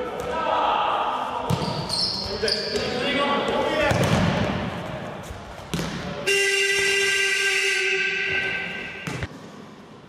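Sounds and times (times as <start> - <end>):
hall noise: 6.2 - 9.3.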